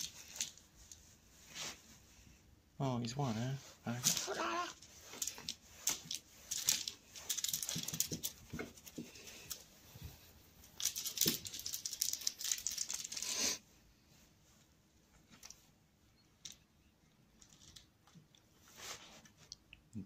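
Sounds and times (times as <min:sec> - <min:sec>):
cat claws scratching: 0:04.0 - 0:09.7, 0:10.6 - 0:13.4.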